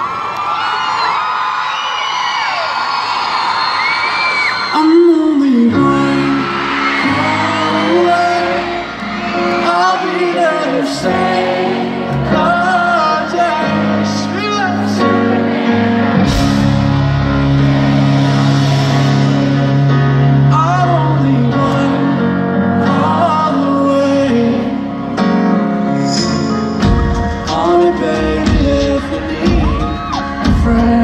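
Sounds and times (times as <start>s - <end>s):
live pop ballad band: 4.0s - 31.0s
person singing: 4.7s - 15.7s, 17.8s - 31.0s.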